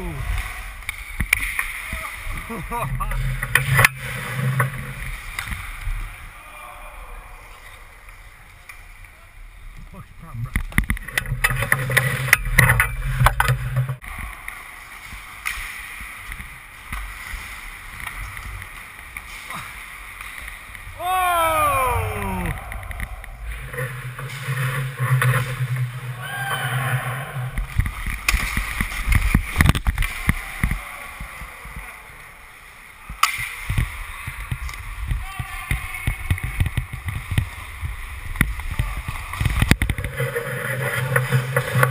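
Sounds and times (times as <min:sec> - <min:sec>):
hockey sticks and skates clattering: 0:00.1 - 0:06.4, 0:07.4 - 0:41.9
skates rushing on ice: 0:00.1 - 0:06.8, 0:10.6 - 0:41.9
low hum: 0:20.9 - 0:29.6.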